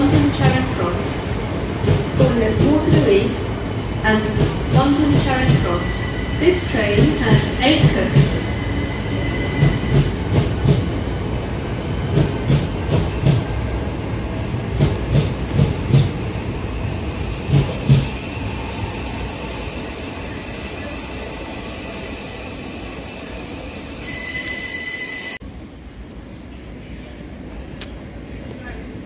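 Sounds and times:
train rumble: 0.0 - 22.1.

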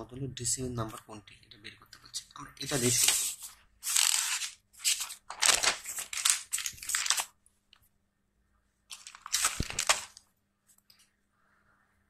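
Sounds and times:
paper page rustling: 2.6 - 7.4, 8.9 - 10.3.

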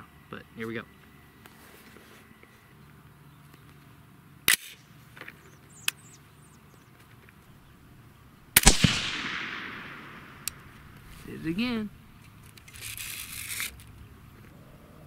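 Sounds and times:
suppressed rifle shots: 8.5 - 11.0
shot echoing: 8.6 - 11.0.

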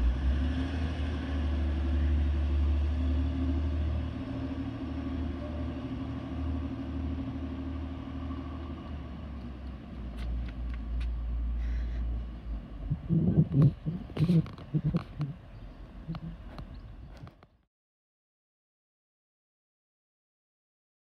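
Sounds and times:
diesel train engine rumble: 0.0 - 17.6
faint clicks: 13.6 - 15.4.

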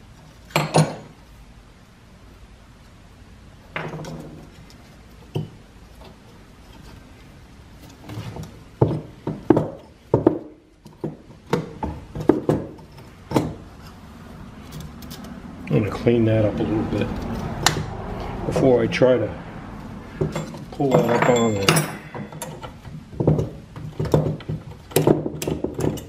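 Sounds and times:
metal parts knocking and clinking: 20.2 - 26.0.

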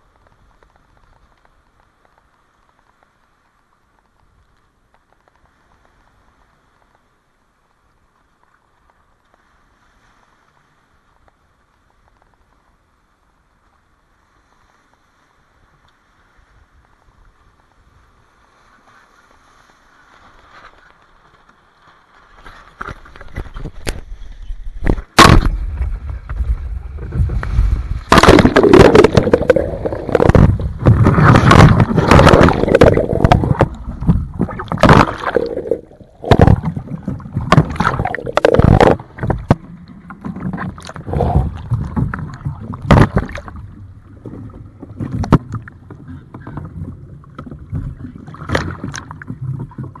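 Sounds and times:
fabric rustling on camera microphone: 14.6 - 39.6.

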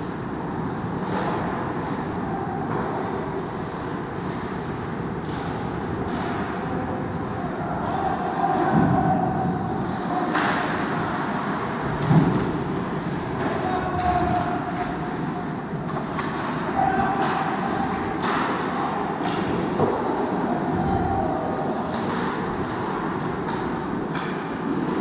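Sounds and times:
stick hitting puck: 10.3 - 11.0, 15.9 - 20.2.

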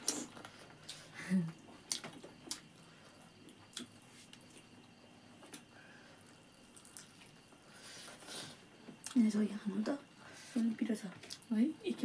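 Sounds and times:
chewing: 1.9 - 4.7, 5.4 - 7.4.

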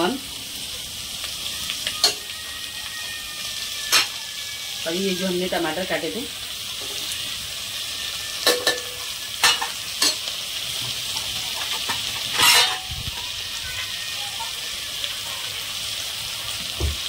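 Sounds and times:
vegetables sizzling in hot oil: 0.0 - 17.0.

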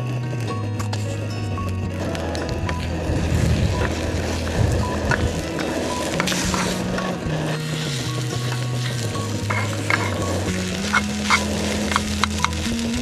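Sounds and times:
music with low bass: 0.0 - 13.0
spoon scraping sizzling eggs: 5.1 - 13.0.

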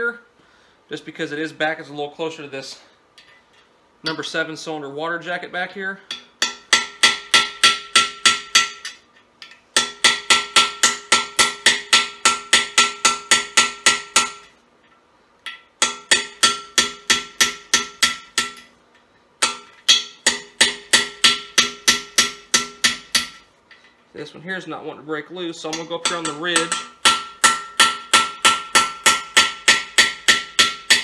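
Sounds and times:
hammer striking screwdriver on metal: 25.7 - 31.0.

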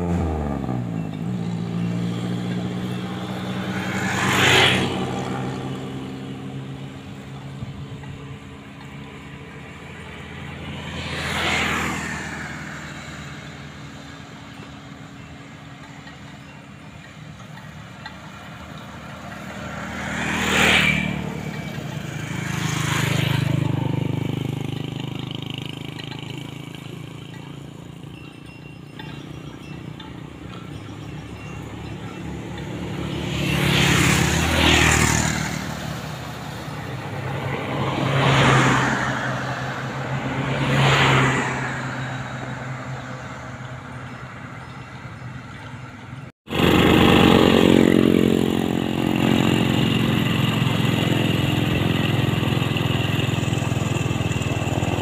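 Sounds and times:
motorcycles passing: 0.0 - 55.0.

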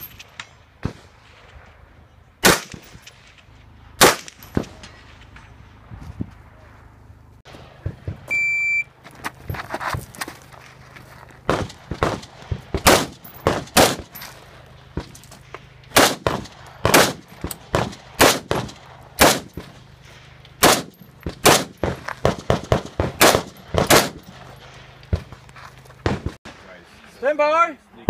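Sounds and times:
rifle shots: 2.4 - 3.4, 4.0 - 5.4, 11.5 - 14.2, 15.9 - 19.7, 20.6 - 25.2.

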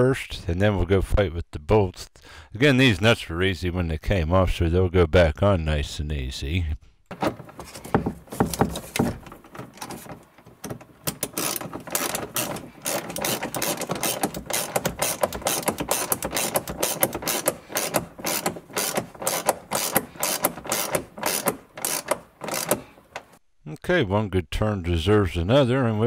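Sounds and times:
socket ratchet clicking: 8.4 - 23.4.

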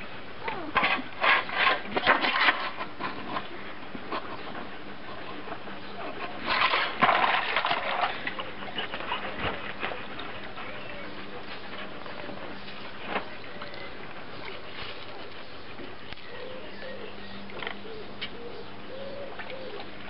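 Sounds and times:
dog splashing water in tub: 5.5 - 16.4.

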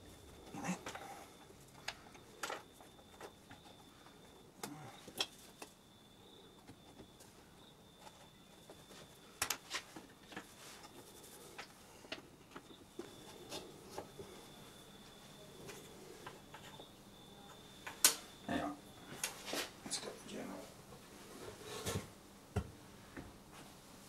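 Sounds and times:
faint high-pitched tone: 12.7 - 20.7.

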